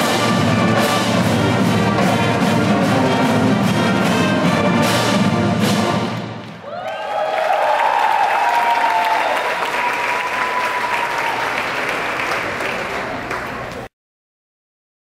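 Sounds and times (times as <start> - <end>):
audience clapping and cheering: 6.2 - 13.9.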